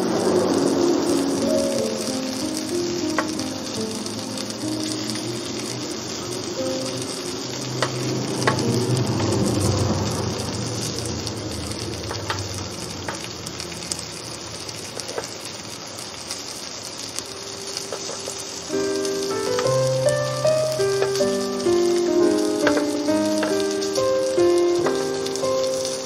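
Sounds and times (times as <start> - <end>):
meat sizzling on a grill: 0.0 - 26.0
metal tongs clicking on grill: 19.5 - 25.0.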